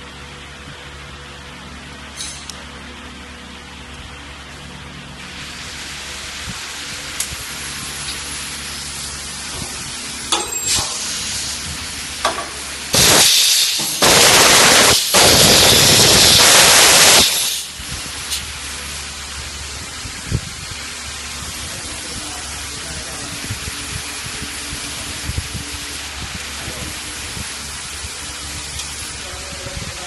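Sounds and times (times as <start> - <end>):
steady background noise: 0.0 - 30.0
compressed air hissing: 5.2 - 19.0.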